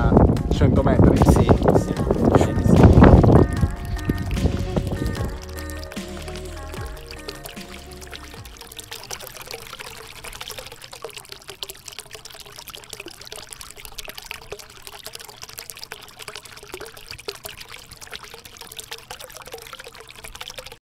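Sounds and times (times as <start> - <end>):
water trickling and splashing: 0.0 - 20.8.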